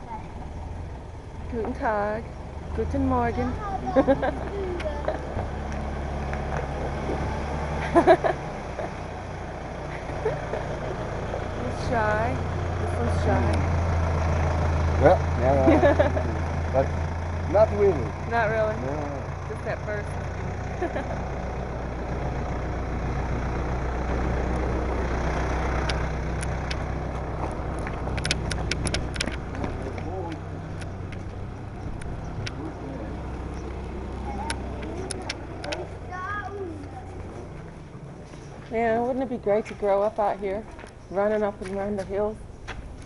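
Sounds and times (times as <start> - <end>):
sharp clicks: 27.7 - 29.6.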